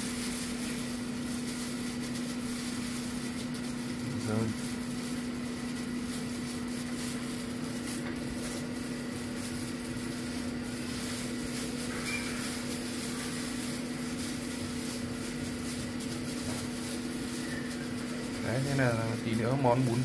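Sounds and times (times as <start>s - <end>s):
air fryer humming with fan: 0.0s - 20.0s.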